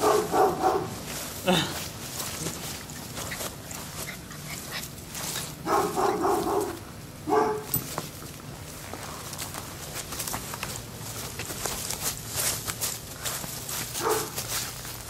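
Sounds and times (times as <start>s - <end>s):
small dog barks: 0.0s - 1.0s, 5.6s - 7.8s, 14.0s - 14.4s.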